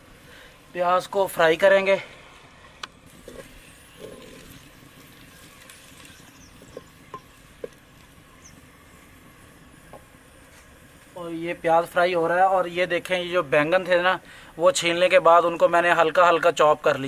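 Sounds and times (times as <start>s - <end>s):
onions sizzling in oil: 3.0s - 14.0s.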